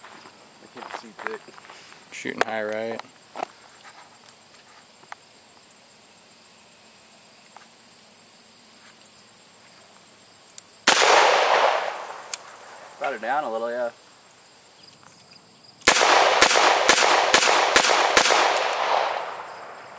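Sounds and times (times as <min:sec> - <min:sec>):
faint outdoor background: 0:00.0 - 0:19.9
revolver gunshot: 0:10.8 - 0:12.4, 0:15.8 - 0:19.9.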